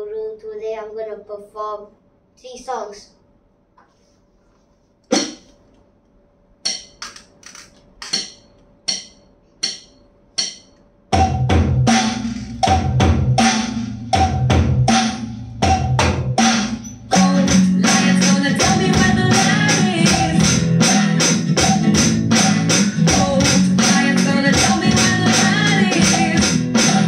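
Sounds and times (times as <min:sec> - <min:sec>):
electronic drum hits: 0:05.1 - 0:05.5, 0:10.4 - 0:27.0
drum groove over backing track: 0:10.4 - 0:27.0.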